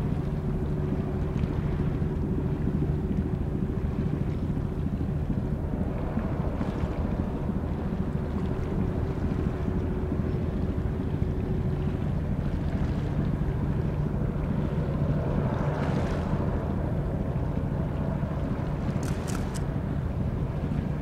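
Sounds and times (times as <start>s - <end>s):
wind noise on microphone: 0.0s - 21.0s.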